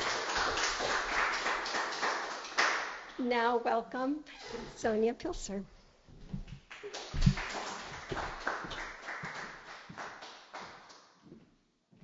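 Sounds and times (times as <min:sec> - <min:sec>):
audience applause: 0:00.0 - 0:03.0, 0:06.8 - 0:10.8.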